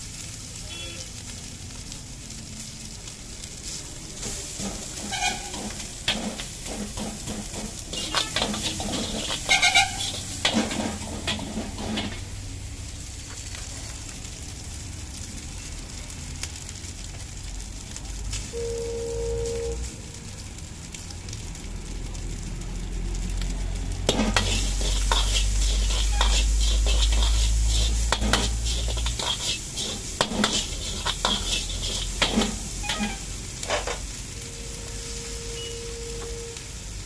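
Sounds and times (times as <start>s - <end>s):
rice sizzling in wok: 0.0s - 37.0s
ladle scraping wok: 3.6s - 12.4s, 24.0s - 34.1s
ladle clinking against wok: 5.5s - 12.2s.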